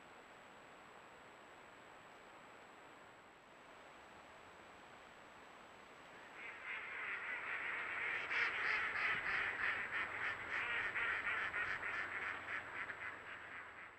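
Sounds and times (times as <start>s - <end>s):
flock of ducks quacking: 6.2s - 13.9s.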